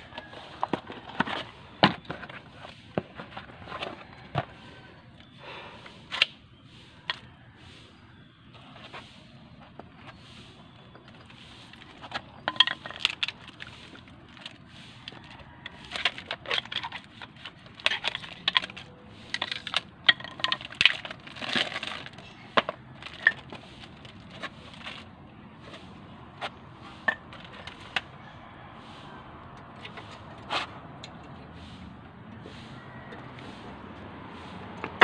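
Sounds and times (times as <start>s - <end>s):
plastic wrapping crinkling and tearing: 20.5s - 25.0s.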